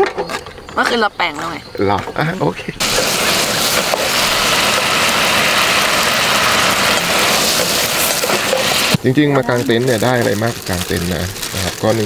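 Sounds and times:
seafood sizzling in pot: 2.8 - 12.0.

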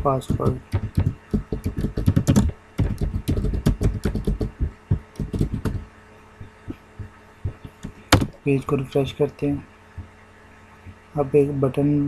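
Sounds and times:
keyboard typing: 0.0 - 5.8, 6.4 - 8.4.

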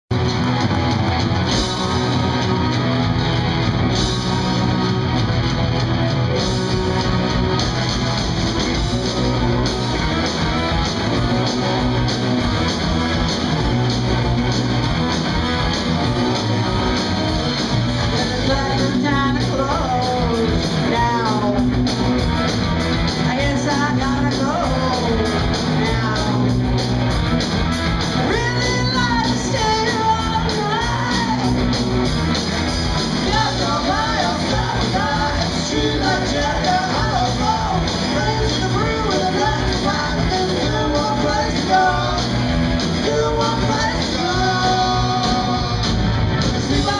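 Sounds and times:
bass guitar: 0.0 - 46.9
drums: 0.0 - 46.9
electric guitar: 0.1 - 46.9
person singing: 18.0 - 21.8, 23.2 - 26.6, 28.2 - 31.6, 33.2 - 46.0, 46.6 - 46.9.

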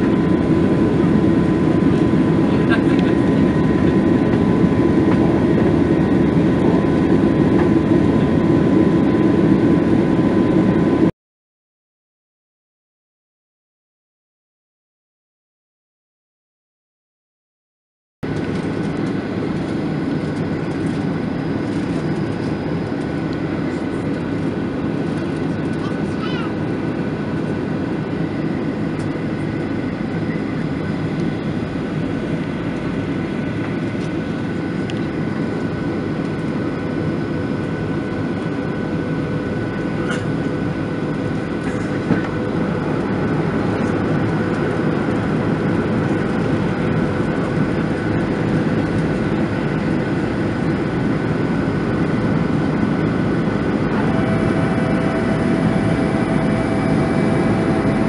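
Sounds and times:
jet engines and rushing air: 0.0 - 11.1, 18.2 - 58.0
steady whining tones: 18.3 - 58.0.

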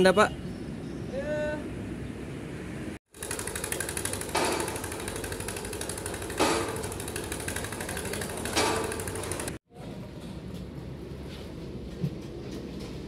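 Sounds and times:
small engine running: 3.1 - 9.6
drop hammer striking pile: 6.3 - 6.9.

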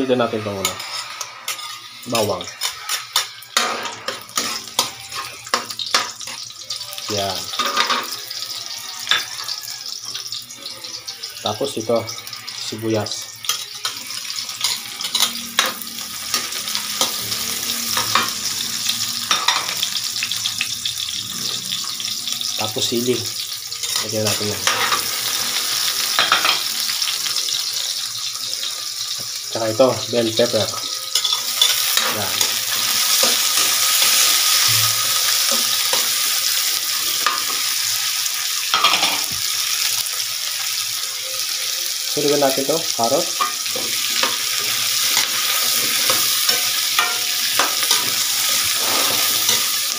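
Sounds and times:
onion sizzling in hot oil: 0.0 - 49.9
metal spatula scraping pan: 0.2 - 6.4, 43.4 - 49.9.

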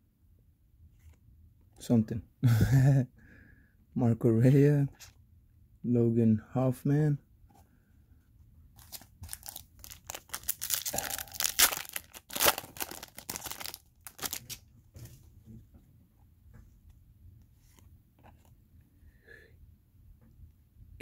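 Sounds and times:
trading cards rustling and scraping: 8.8 - 14.6.

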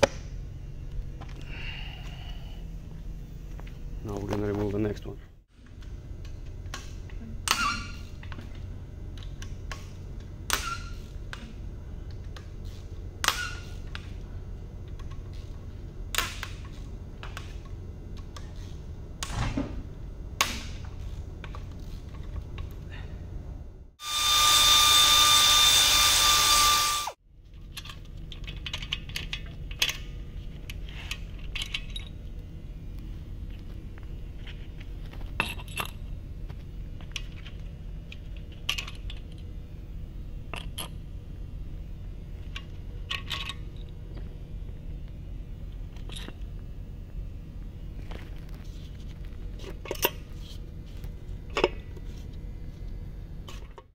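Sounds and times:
power tool whirring: 24.0 - 27.2
wrench and metal parts clinking: 31.4 - 32.2.

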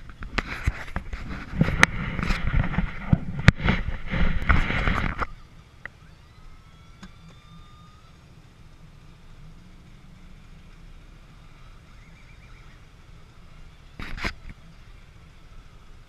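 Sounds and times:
knocks and bumps on microphone: 0.0 - 5.3
diesel engine humming: 0.0 - 16.0.

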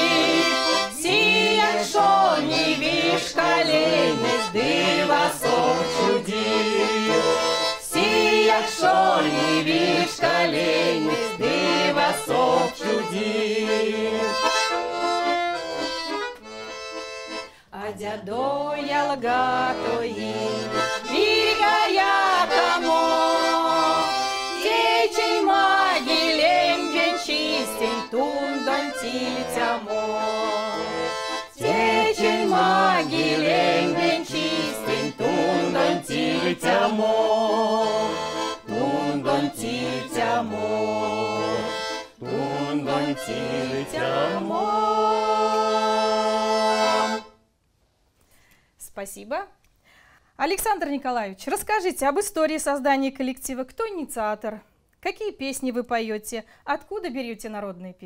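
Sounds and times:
women singing together: 0.0 - 14.5, 17.8 - 47.2
button accordion playing folk tune: 0.0 - 47.4.

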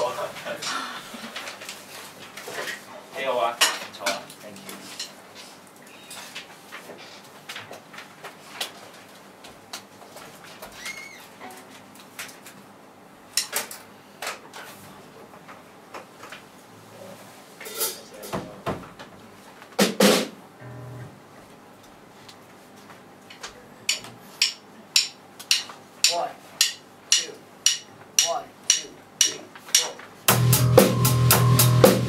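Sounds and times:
drumstick taps: 23.9 - 30.0
drum and cymbal hits: 24.4 - 32.0.

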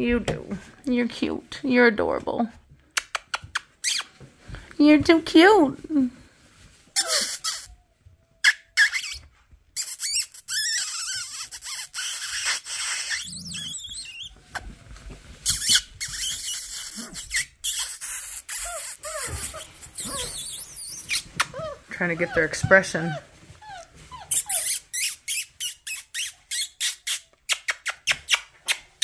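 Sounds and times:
puppies squeaking: 7.0 - 7.8, 8.4 - 14.7, 15.4 - 29.0.

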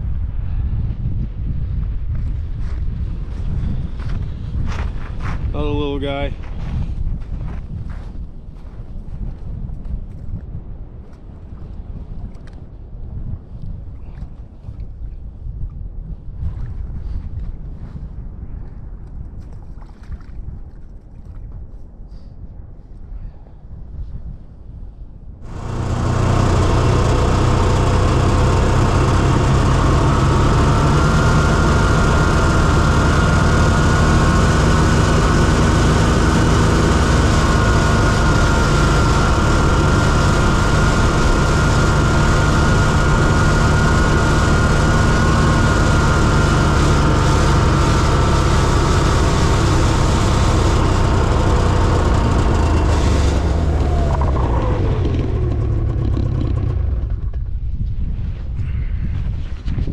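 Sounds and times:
snowmobile engine running: 25.4 - 57.6.

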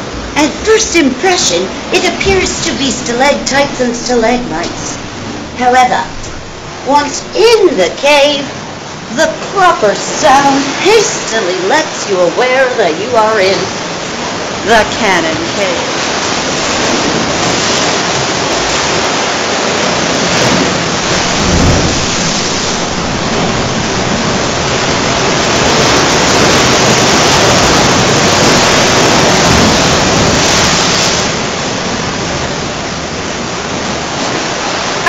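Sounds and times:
sea waves rushing through cave: 0.0 - 35.0
low wave boom: 1.6 - 7.4, 21.0 - 25.2.

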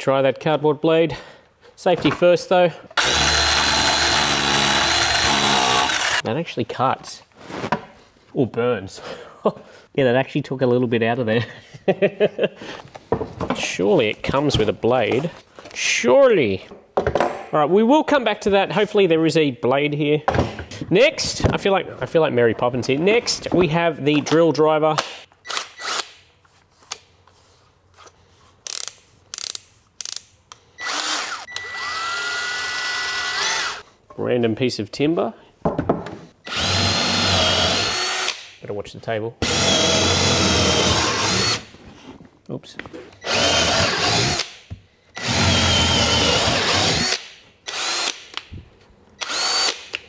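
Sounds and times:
drill motor whining: 3.0 - 6.2, 30.8 - 33.8, 36.4 - 38.4, 39.4 - 41.7, 43.2 - 44.5, 45.2 - 48.2, 49.2 - 49.8
drill chuck ratcheting clicks: 49.2 - 50.0.

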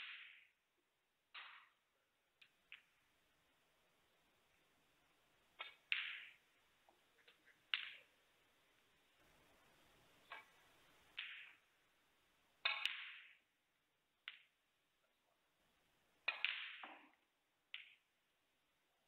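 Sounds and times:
snooker balls clacking: 5.5 - 8.2, 10.2 - 11.7, 12.6 - 13.5, 16.2 - 18.1.

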